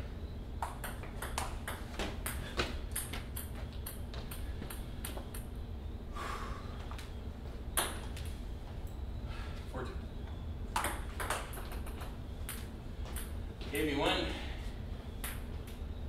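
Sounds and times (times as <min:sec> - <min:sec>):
ping pong ball clicking: 0:00.6 - 0:05.5, 0:10.8 - 0:12.6.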